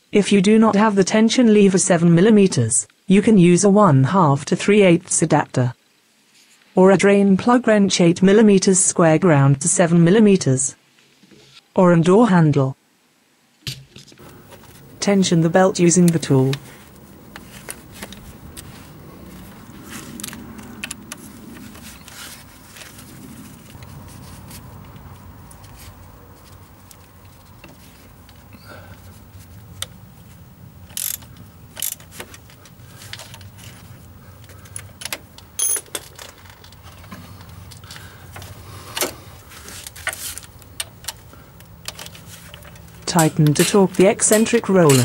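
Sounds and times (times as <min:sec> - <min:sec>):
metal hand tools clinking: 0:35.6 - 0:36.2, 0:42.5 - 0:45.0.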